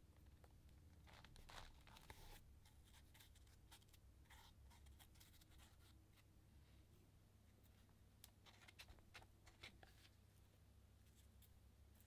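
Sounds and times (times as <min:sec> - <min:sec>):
fingers rustling paper: 0:00.2 - 0:06.0, 0:08.2 - 0:10.2.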